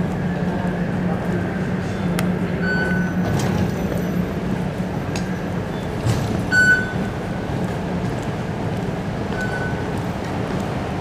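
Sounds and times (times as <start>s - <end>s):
low hum of metro station: 0.0s - 11.0s
high electronic beep: 2.6s - 3.2s, 6.5s - 7.1s, 9.4s - 9.8s.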